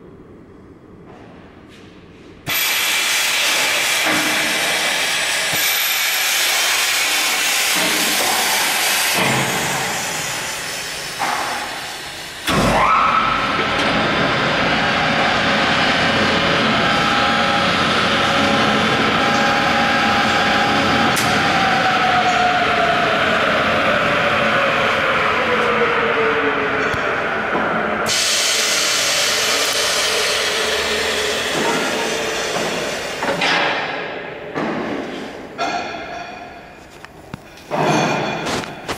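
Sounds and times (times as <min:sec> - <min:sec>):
loud hiss: 0:02.5 - 0:12.6, 0:28.1 - 0:33.3
machine rush with falling whine: 0:03.0 - 0:33.4.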